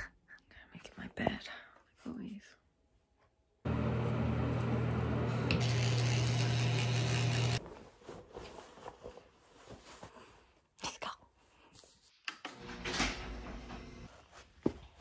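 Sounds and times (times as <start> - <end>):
electric toothbrush buzzing: 5.5 - 7.6
clothing rustling: 7.6 - 10.8.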